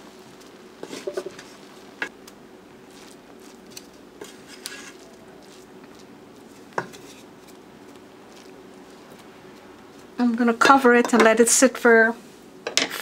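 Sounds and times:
wooden paddle scraping metal pot: 4.2s - 5.0s, 6.7s - 7.3s.

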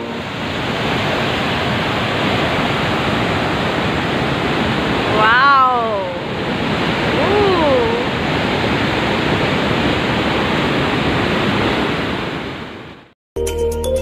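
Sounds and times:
steady rushing noise: 0.0s - 13.1s
person saying wow: 5.1s - 6.3s, 7.1s - 8.1s.

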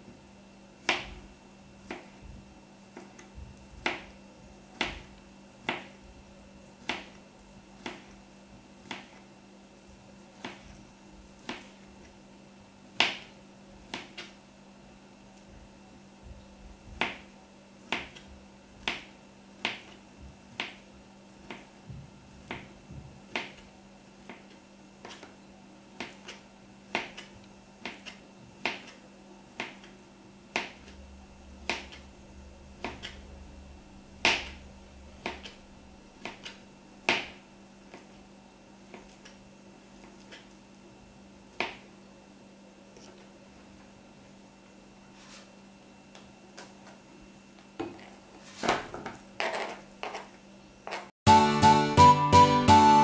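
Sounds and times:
knife tapping cutting board: 3.0s - 4.1s, 6.8s - 7.2s, 7.8s - 8.1s, 21.4s - 23.6s, 31.6s - 32.0s, 32.8s - 33.2s, 35.2s - 35.6s.

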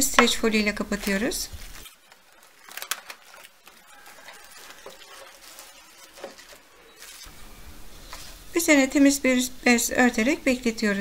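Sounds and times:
cling film crinkling: 0.4s - 7.3s.

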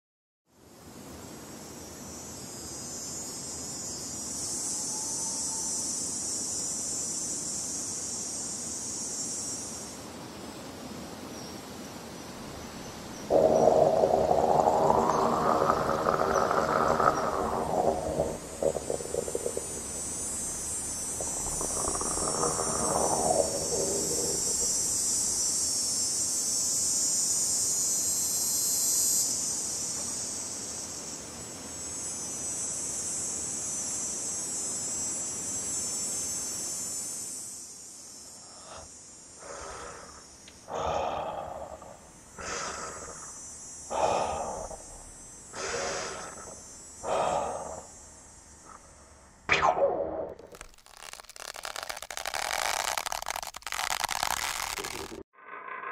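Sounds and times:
steady high hiss: 0.6s - 55.3s
moaning tone rising and falling: 13.3s - 25.0s.

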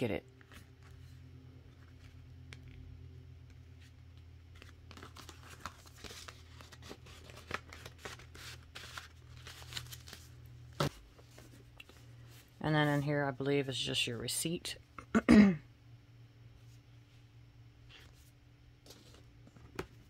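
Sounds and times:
steady low hum: 0.0s - 20.0s
paper rustling and crinkling: 3.7s - 13.1s, 17.9s - 20.0s.

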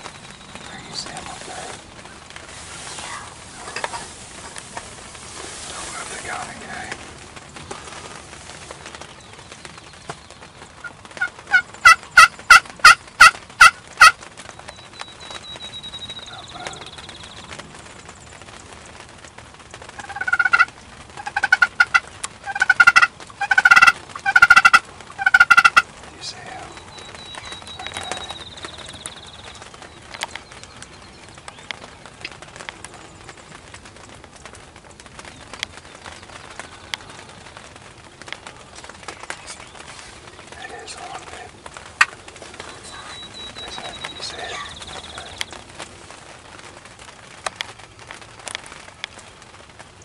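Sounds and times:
turkey yelps: 20.0s - 25.9s.

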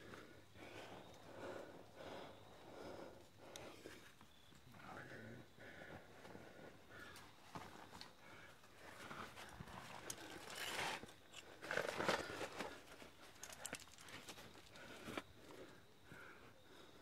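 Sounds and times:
hands and shoes scraping rock: 9.1s - 12.8s.

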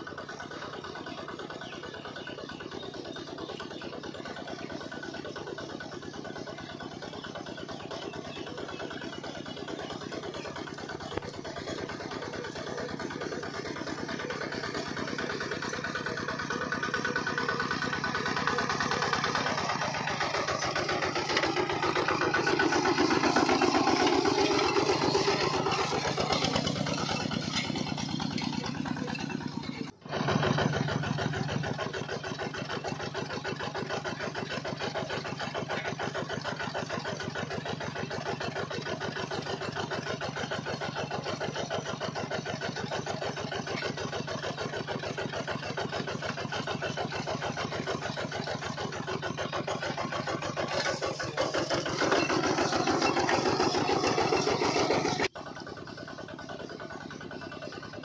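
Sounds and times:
model engine chugging: 0.0s - 58.0s.

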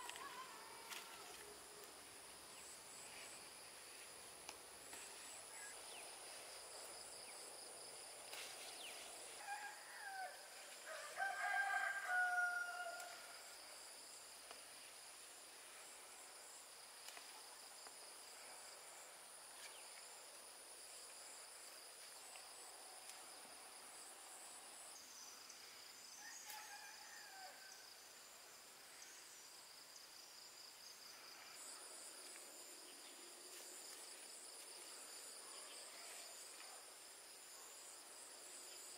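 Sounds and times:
insects chirring: 0.0s - 38.9s
rooster crowing: 9.4s - 13.4s, 26.2s - 27.9s.

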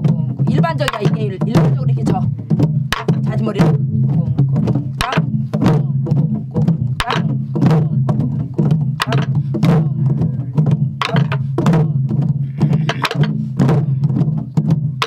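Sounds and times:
deep drumhead strikes: 0.0s - 15.0s
stick clacking on drum shell: 2.9s - 3.3s, 7.0s - 7.3s, 9.0s - 9.4s, 11.0s - 11.4s, 12.8s - 13.4s.

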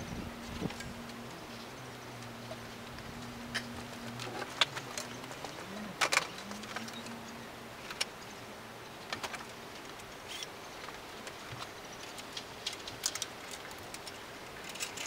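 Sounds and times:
metal parts clattering: 12.6s - 15.0s.

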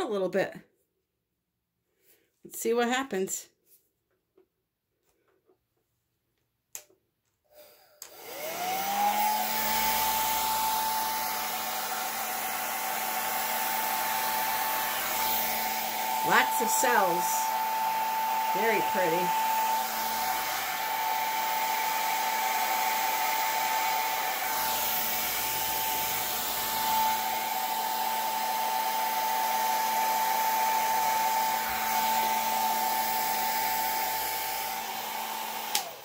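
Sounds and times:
air blower whining: 7.6s - 36.0s.

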